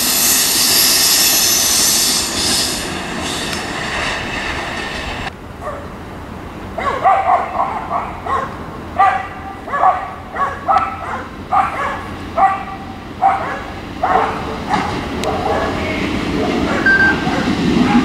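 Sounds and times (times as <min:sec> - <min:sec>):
dog barking: 0:05.6 - 0:05.9, 0:06.8 - 0:18.0.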